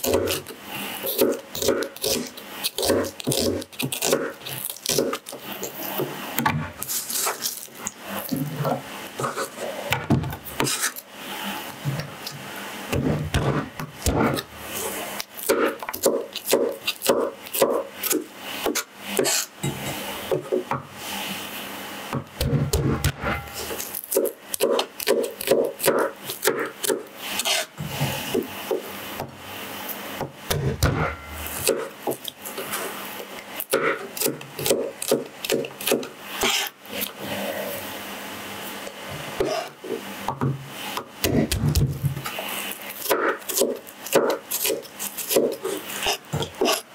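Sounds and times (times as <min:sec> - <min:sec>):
garlic cloves scraped: 0:00.0 - 0:06.0, 0:06.8 - 0:08.4, 0:23.4 - 0:28.3, 0:33.6 - 0:37.5, 0:42.4 - 0:46.9
knife chopping on cutting board: 0:01.1 - 0:05.2, 0:12.9 - 0:14.5, 0:15.4 - 0:20.7, 0:22.2 - 0:29.3, 0:30.2 - 0:32.3, 0:33.7 - 0:36.7, 0:41.2 - 0:42.2, 0:43.0 - 0:46.8.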